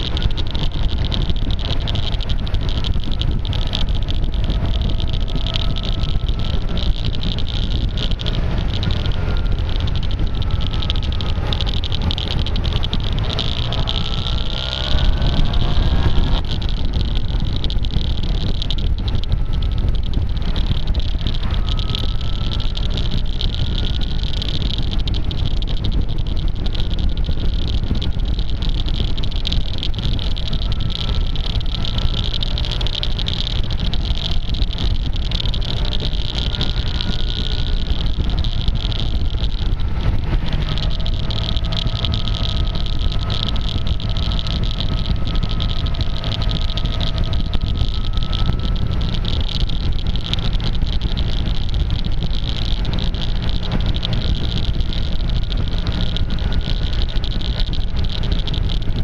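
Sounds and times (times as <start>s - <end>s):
constant strange clicking: 0.0s - 59.0s
wind and road rumble: 0.0s - 59.0s.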